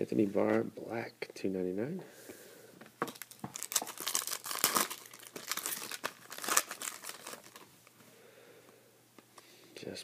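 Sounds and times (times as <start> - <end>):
foil wrapper tearing and crinkling: 3.1 - 7.7.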